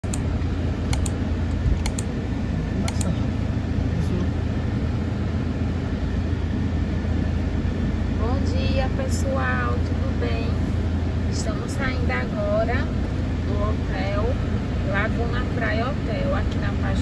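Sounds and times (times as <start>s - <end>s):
low outdoor rumble: 0.0s - 17.0s
quick double clicks: 0.9s - 1.2s, 1.8s - 2.1s.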